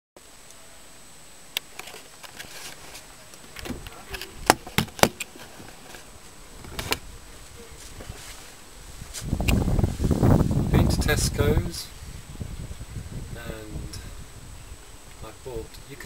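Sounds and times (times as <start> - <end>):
low rumbling and rubbing: 5.4 - 14.7.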